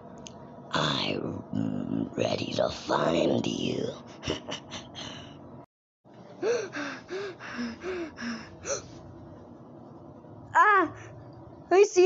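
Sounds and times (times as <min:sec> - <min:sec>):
child panting: 0:06.4 - 0:08.9.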